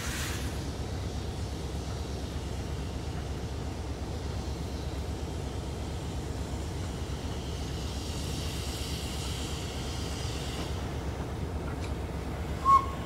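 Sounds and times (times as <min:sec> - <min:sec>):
steam hissing: 0:00.0 - 0:11.6, 0:12.3 - 0:13.0
steam whistle toot: 0:12.6 - 0:13.0.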